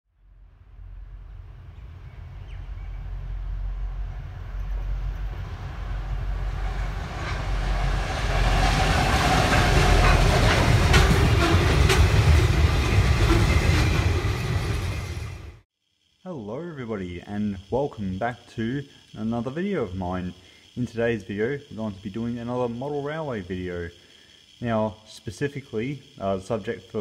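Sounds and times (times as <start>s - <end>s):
diesel locomotive rumble: 0.3s - 15.6s
train wheels clicking on rail joints: 3.4s - 15.2s.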